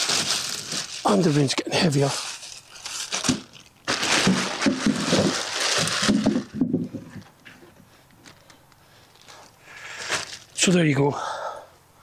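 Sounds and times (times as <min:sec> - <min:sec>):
plastic bag rustling: 0:00.0 - 0:07.4, 0:08.2 - 0:10.6
potatoes thudding into wheelbarrow: 0:03.2 - 0:07.2.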